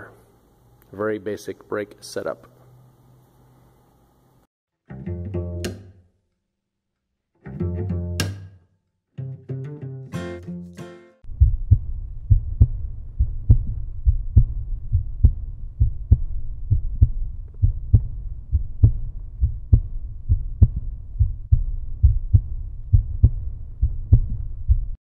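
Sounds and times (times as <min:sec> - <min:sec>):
bass-heavy beat of low thumps: 0:11.2 - 0:25.0
low bass line: 0:11.2 - 0:25.0.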